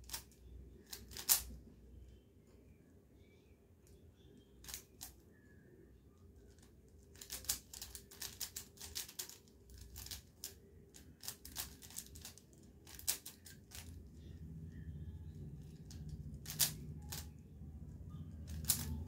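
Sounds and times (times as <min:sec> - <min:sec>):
puzzle cube plastic clicks: 0:00.0 - 0:01.6, 0:04.6 - 0:05.2, 0:06.5 - 0:14.0, 0:15.6 - 0:17.3, 0:18.4 - 0:19.0.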